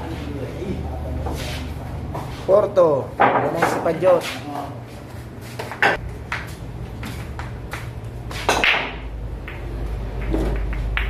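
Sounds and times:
pool balls clicking: 7.2 - 11.0.

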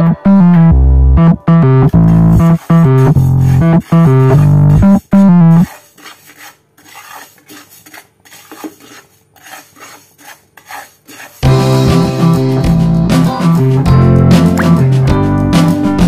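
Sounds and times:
guitar music: 0.0 - 5.7, 11.4 - 16.0
spatula scraping frying pan: 1.9 - 12.1.

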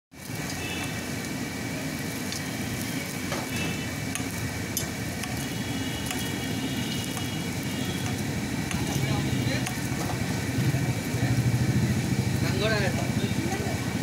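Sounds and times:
bread sizzling in oil: 0.1 - 14.0
low street traffic rumble: 0.1 - 14.0
metal ladle clinking on griddle: 8.0 - 10.2.

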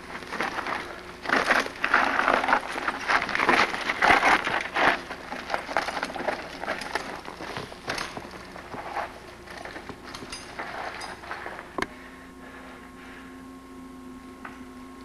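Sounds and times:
bike rolling over dirt trail: 0.0 - 11.8.

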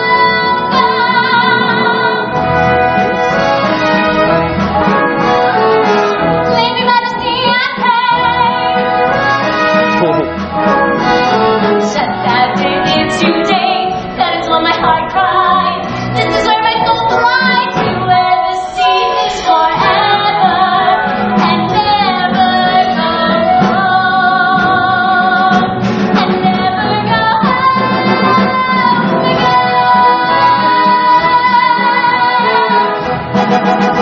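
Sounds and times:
orchestra accompanying: 0.0 - 34.0
woman singing show tune: 6.5 - 8.8, 11.4 - 33.0.

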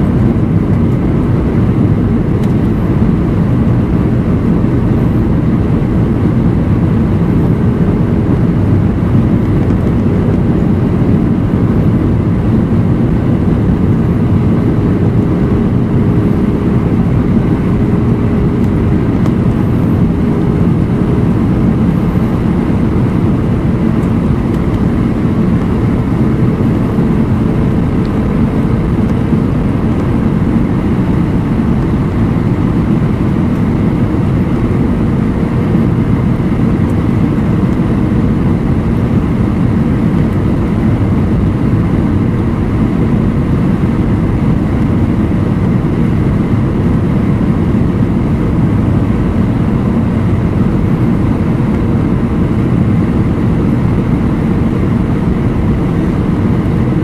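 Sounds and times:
faint hum: 0.0 - 57.0
jet engines droning: 0.0 - 57.0
rushing airflow: 0.0 - 57.0.

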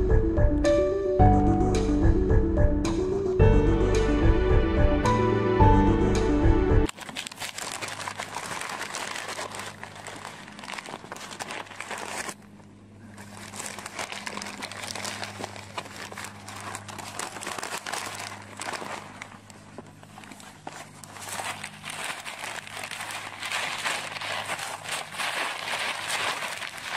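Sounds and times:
background music: 0.0 - 6.9
crinkling and scratching on microphone: 6.9 - 26.9.

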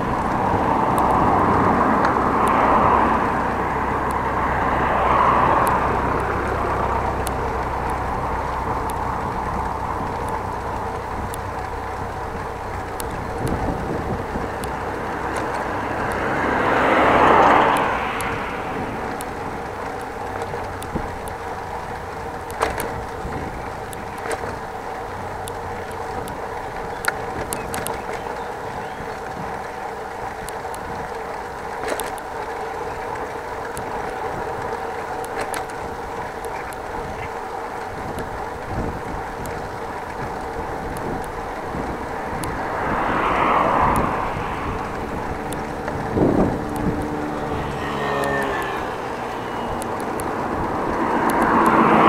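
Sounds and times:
vehicle passing close by: 0.0 - 11.3, 12.7 - 21.0, 40.5 - 52.0
bicycle rolling noise: 0.0 - 52.0
small rattling clicks: 0.0 - 52.0
wind noise: 12.1 - 19.7, 37.9 - 48.1.

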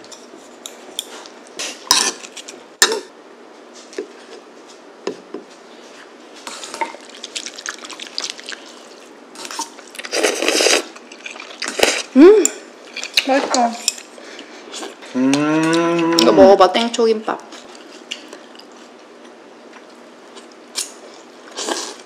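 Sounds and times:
eating sounds: 6.5 - 16.4.

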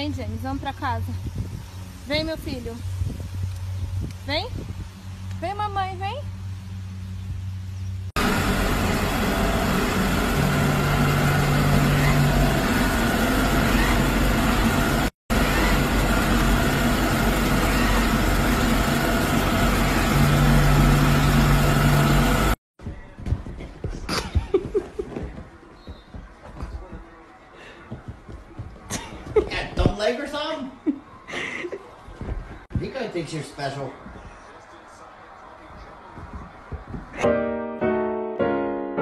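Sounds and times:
robot vacuum running: 8.2 - 22.6.

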